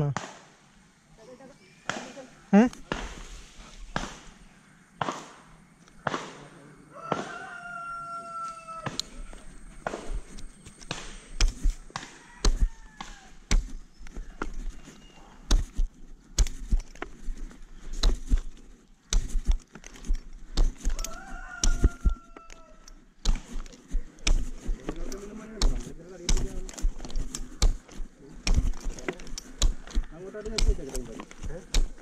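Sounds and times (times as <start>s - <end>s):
rooster crowing: 6.7s - 10.5s, 11.8s - 13.5s, 20.8s - 23.7s
knocks and thumps on tree trunk: 9.8s - 32.0s.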